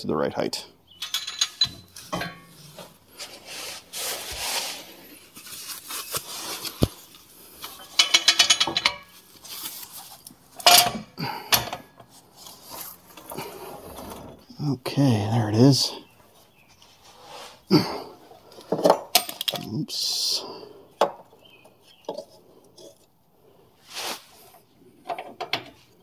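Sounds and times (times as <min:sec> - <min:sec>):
metal scrapes and knocks: 0:01.0 - 0:03.0.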